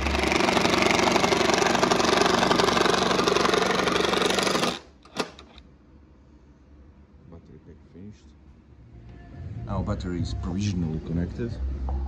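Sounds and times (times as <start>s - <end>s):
impact wrench rattling: 0.0s - 5.6s.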